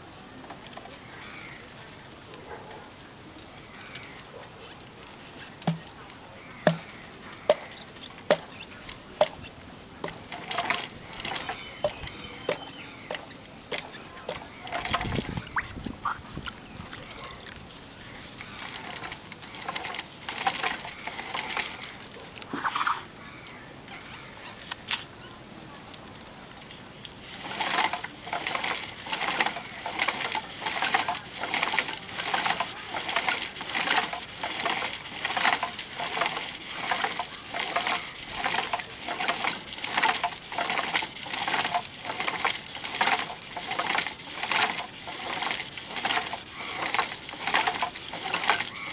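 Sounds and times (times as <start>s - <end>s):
hand sanding on a lathe: 18.6s - 21.8s, 27.2s - 48.9s.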